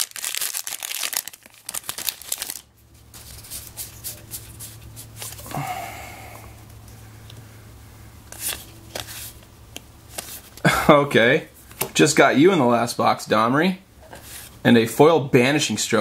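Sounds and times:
cards clicking and rustling: 0.0s - 2.6s, 8.3s - 10.6s
foil wrapper crinkling and tearing: 0.0s - 4.6s.

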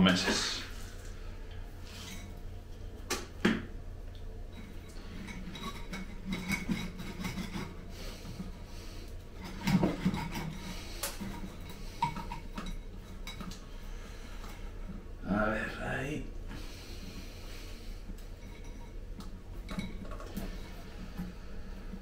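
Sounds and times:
pot and tools handling noises: 1.8s - 3.7s, 4.4s - 15.0s, 18.1s - 21.4s.

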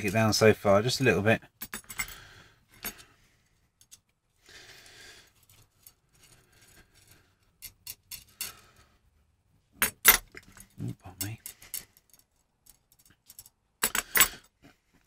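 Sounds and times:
metal nuts and washers clicking: 1.6s - 2.2s, 5.4s - 8.7s, 9.8s - 14.5s.

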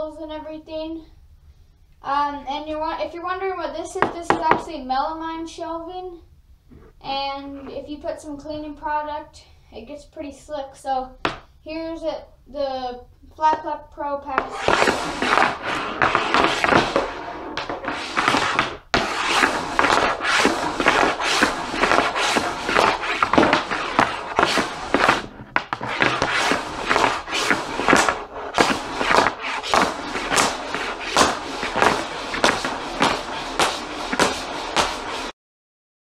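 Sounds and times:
hockey stick clacking puck: 4.0s - 4.7s, 14.3s - 35.3s
puck scraping over board: 4.0s - 4.7s, 14.3s - 35.3s.

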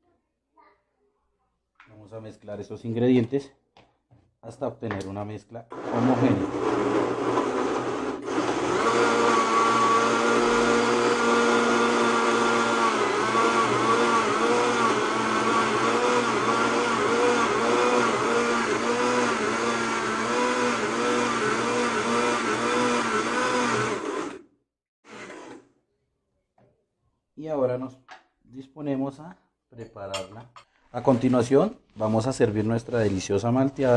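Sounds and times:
blender motor running: 5.7s - 25.7s.

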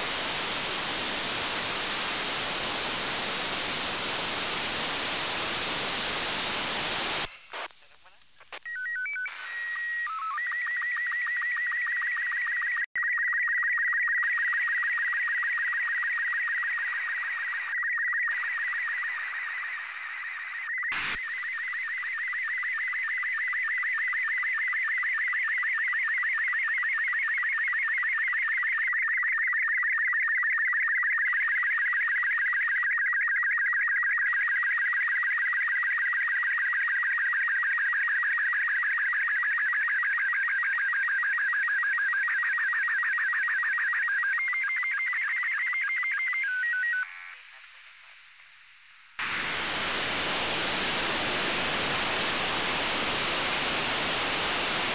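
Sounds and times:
radio crackle: 0.0s - 10.5s, 16.3s - 23.6s, 45.1s - 54.9s
high warbling radio tone: 49.2s - 54.9s.

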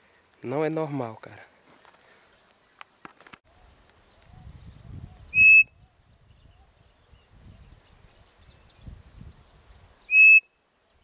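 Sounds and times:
wooden bird-call whistle: 5.3s - 5.8s, 10.1s - 10.5s.

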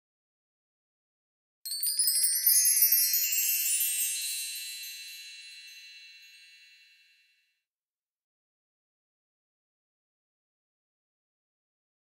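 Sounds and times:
wind chimes tinkling: 1.7s - 7.3s.

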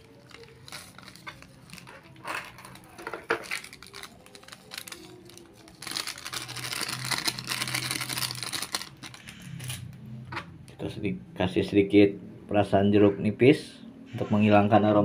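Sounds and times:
plastic sachet crinkling: 0.0s - 9.8s.

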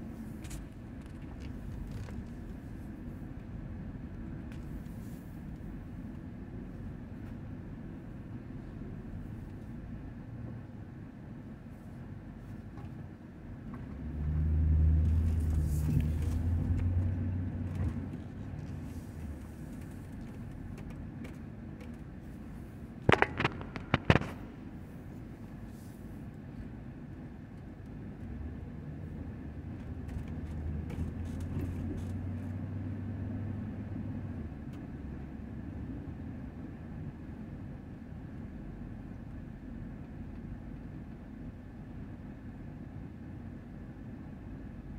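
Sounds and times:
car engine drone: 0.0s - 44.9s
road noise inside car: 0.0s - 44.9s
sharp clicks: 23.1s - 24.4s.

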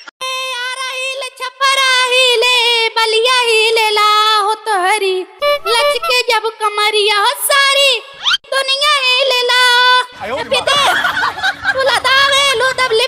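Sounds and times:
high-pitched voice singing: 0.2s - 10.0s.

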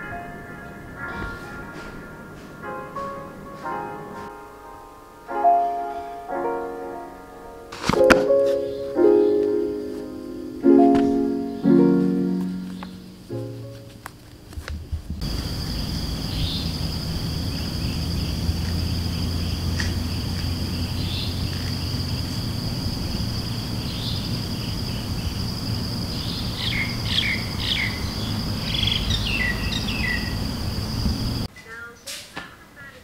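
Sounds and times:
birds chirping: 8.2s - 13.8s, 15.2s - 31.5s
low steady rumble: 14.9s - 31.5s
insects trilling: 15.2s - 31.5s.

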